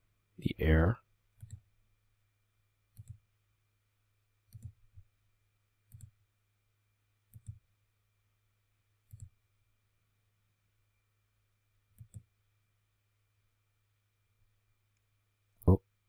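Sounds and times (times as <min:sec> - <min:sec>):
computer mouse clicking: 0:01.4 - 0:01.7, 0:02.9 - 0:03.2, 0:04.5 - 0:04.8, 0:05.9 - 0:06.2, 0:07.3 - 0:07.7, 0:09.0 - 0:09.4, 0:11.9 - 0:12.3.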